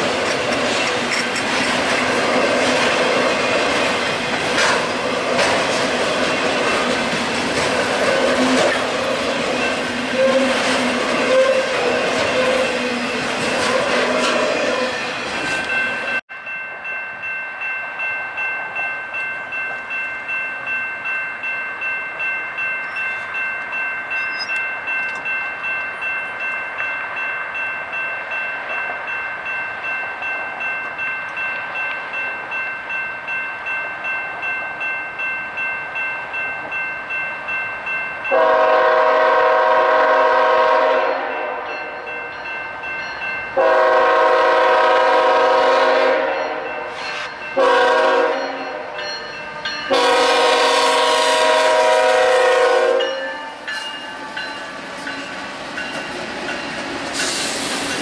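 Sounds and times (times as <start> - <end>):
bell ringing: 15.6 - 38.5, 41.7 - 43.6, 46.4 - 50.0, 53.0 - 56.9
locomotive air horn chord: 38.3 - 42.0, 43.6 - 49.0, 49.9 - 53.1.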